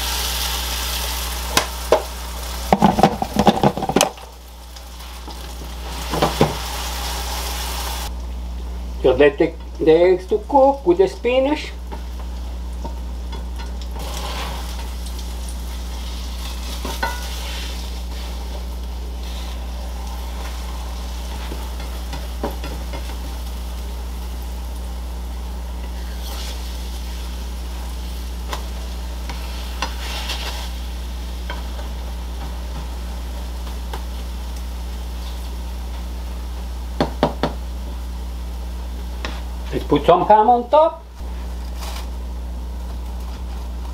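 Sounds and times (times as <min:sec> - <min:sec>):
batter sizzling in a frying pan: 0:00.0 - 0:43.9
steady low hum: 0:00.0 - 0:43.9
spatula scraping a pan: 0:14.0 - 0:14.9, 0:15.9 - 0:23.2, 0:25.8 - 0:27.2, 0:29.2 - 0:30.8.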